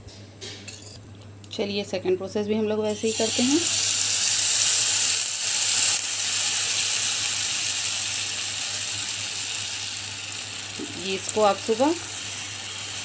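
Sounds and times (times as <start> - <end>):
batter sizzling in a pan: 3.0 - 13.0.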